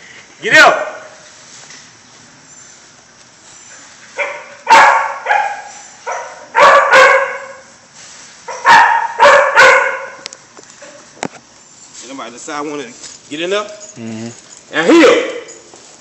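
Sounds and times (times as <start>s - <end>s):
dog barking loudly: 4.2s - 7.7s, 8.5s - 10.2s, 14.8s - 15.5s.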